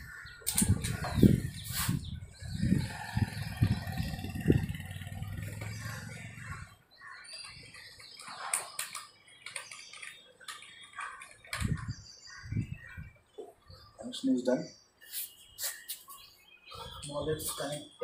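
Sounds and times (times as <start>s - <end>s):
scattered clicks: 7.4s - 12.0s.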